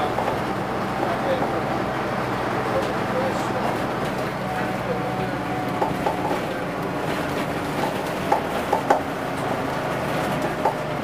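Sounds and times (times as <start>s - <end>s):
bus engine drone: 0.0s - 11.0s
sharp knocks and rattles: 5.8s - 6.5s, 7.1s - 9.1s, 10.2s - 10.9s.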